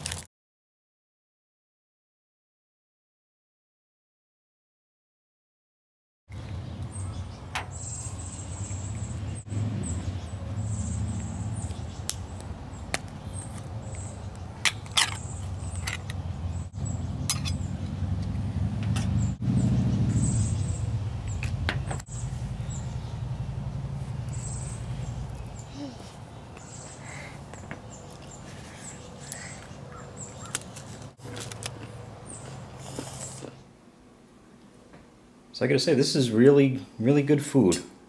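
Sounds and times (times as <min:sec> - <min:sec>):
foil wrappers crinkling: 0:00.0 - 0:00.3, 0:30.4 - 0:32.0
steady low rumble: 0:15.3 - 0:27.2.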